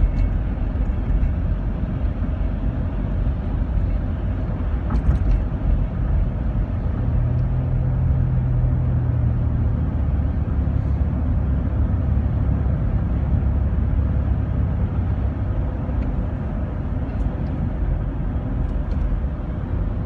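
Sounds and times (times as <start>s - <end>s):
van engine and tyres rumbling: 0.0s - 20.0s.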